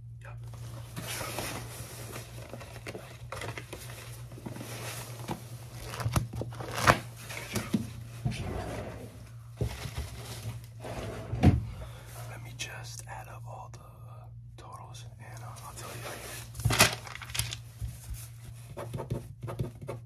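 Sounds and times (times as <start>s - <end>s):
low steady hum: 0.0s - 20.0s
hands rustling and crinkling objects: 0.4s - 8.2s, 15.3s - 18.7s.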